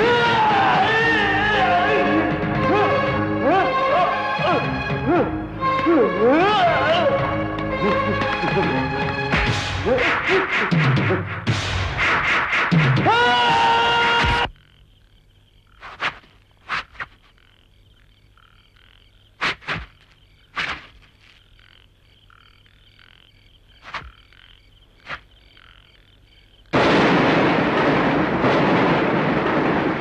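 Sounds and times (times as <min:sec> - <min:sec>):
sharp loud croaks: 0:12.1 - 0:30.0
frogs croaking: 0:12.2 - 0:27.8
faint steady chirping: 0:13.9 - 0:26.8.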